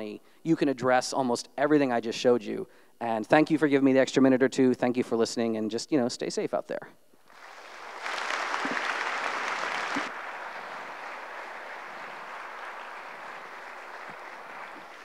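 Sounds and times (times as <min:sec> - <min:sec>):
audience applauding: 0:07.3 - 0:15.0.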